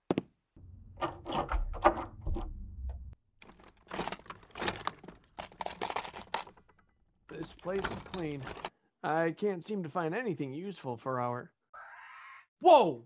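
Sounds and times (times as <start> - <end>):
objects clattering and rattling: 3.4 - 8.7.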